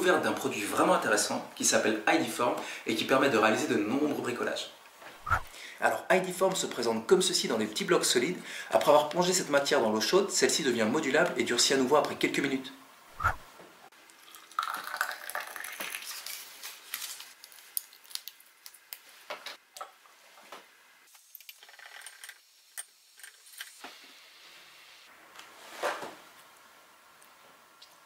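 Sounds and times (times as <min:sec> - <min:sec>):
plastic blister pack crinkling: 0:15.7 - 0:19.1.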